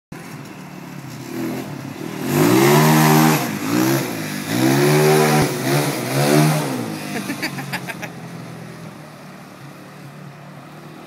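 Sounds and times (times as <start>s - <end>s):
quad engine revving hard: 1.3s - 8.1s.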